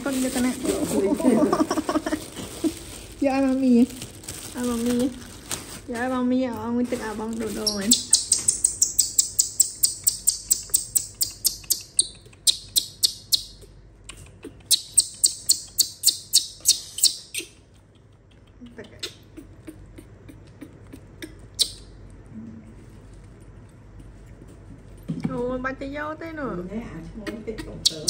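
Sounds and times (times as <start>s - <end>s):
baby monkey crying squeaks: 7.6s - 13.7s, 14.5s - 17.6s, 27.6s - 28.0s.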